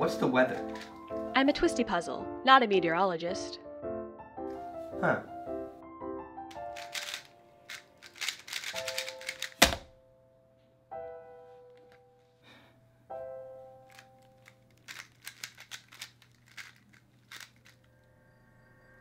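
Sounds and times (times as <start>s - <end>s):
plastic cube clicking: 6.5s - 9.9s, 13.9s - 17.8s
chime background music: 17.9s - 19.0s.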